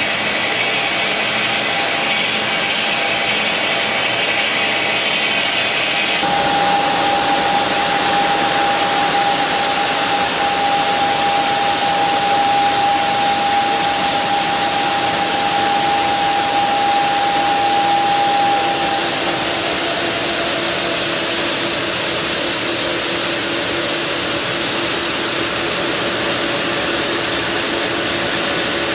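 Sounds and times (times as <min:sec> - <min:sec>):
high whine: 0:00.0 - 0:28.9
stone cutting machine hissing: 0:00.0 - 0:28.9.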